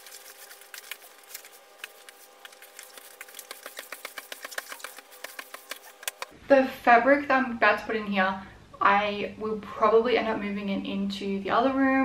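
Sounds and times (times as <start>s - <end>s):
fabric rustling on cardboard: 0.0s - 6.3s
faint steady hum: 0.0s - 12.0s.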